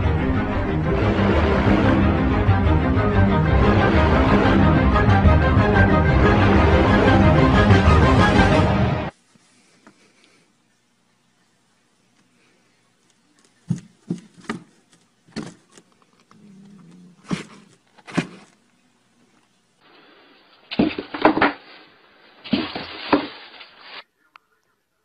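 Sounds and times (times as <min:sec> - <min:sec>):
cats scratching cardboard: 0:13.4 - 0:18.7
thumps on cardboard boxes: 0:13.7 - 0:15.6.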